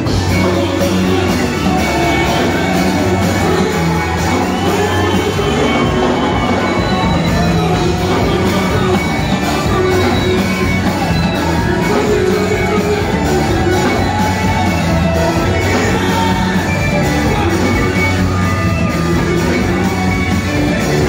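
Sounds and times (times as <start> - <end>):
choir singing gospel music: 0.0 - 18.7
band with heavy bass: 0.0 - 21.0
crowd shouting: 0.0 - 21.0.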